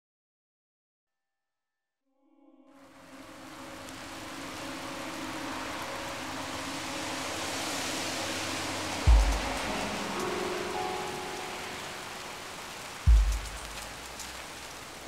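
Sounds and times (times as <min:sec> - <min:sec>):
low sustained musical tones: 0:02.4 - 0:15.0
steady rain: 0:02.8 - 0:15.0
deep boom: 0:09.1 - 0:09.6, 0:13.1 - 0:13.8.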